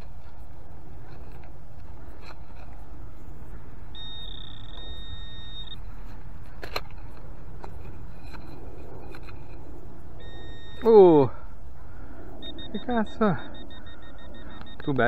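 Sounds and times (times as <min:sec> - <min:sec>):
metal detector high tone: 0:03.9 - 0:05.8, 0:10.2 - 0:11.2, 0:12.4 - 0:15.0.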